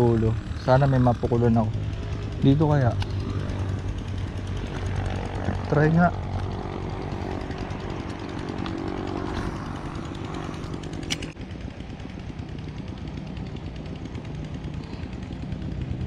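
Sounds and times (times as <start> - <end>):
water pump droning: 0.0 - 11.8
sharp click: 11.0 - 11.4.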